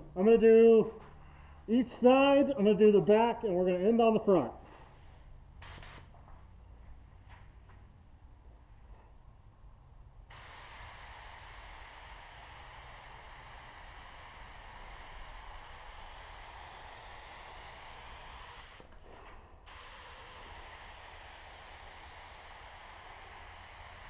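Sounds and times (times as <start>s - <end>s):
paint spray gun hissing: 4.9s - 6.2s, 10.3s - 19.0s, 19.6s - 24.0s.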